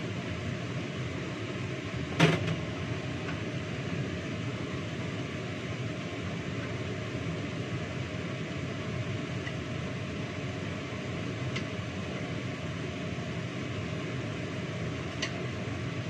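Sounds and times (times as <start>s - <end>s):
extractor fan whooshing hum: 0.0s - 16.0s.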